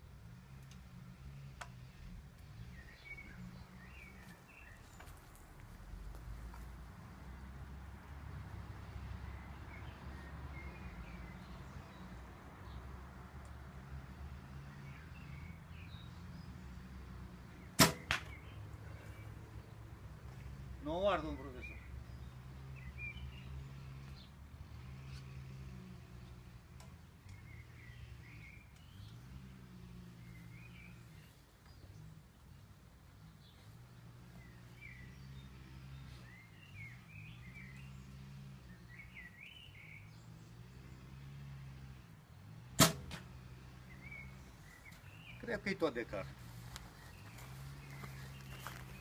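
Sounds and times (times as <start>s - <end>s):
arrow striking target: 17.8s - 18.4s, 42.7s - 43.3s
faint bird chirps and calls: 20.4s - 25.5s.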